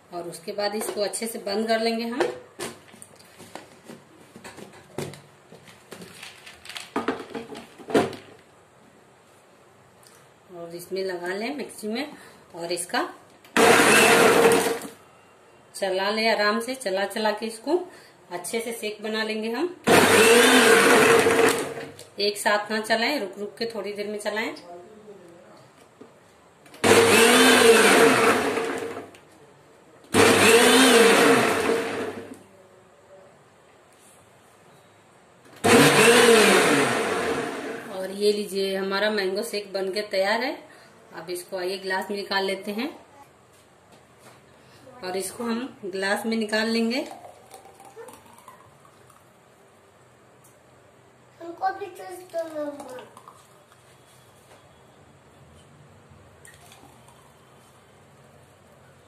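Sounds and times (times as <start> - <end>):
mixer grinder blending: 13.6 - 14.9, 19.9 - 21.8, 26.8 - 29.0, 30.2 - 32.3, 35.6 - 37.9.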